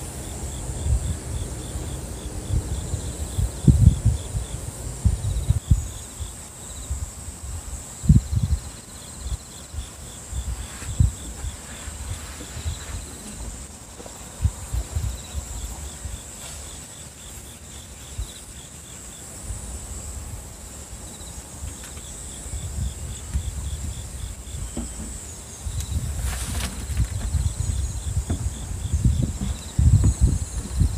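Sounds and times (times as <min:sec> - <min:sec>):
insects chirping: 0:00.0 - 0:30.9
low thumps and rumbles: 0:22.6 - 0:30.9.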